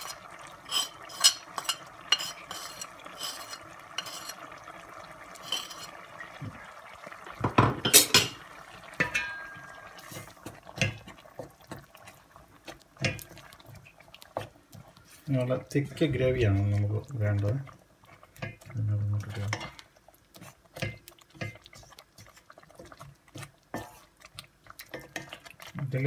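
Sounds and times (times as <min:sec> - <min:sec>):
spoon scraping a steel pan: 0:00.0 - 0:04.4, 0:05.4 - 0:06.0.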